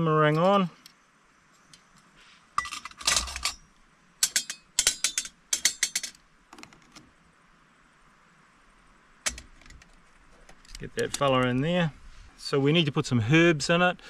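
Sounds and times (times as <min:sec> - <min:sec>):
metal stove parts clinking: 0:02.6 - 0:06.2, 0:09.2 - 0:09.8.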